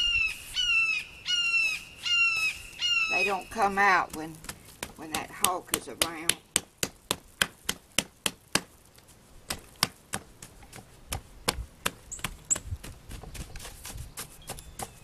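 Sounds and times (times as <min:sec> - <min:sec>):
soft rubbing of sand: 0:00.0 - 0:00.8, 0:01.6 - 0:15.0
hands patting damp sand: 0:02.3 - 0:15.0.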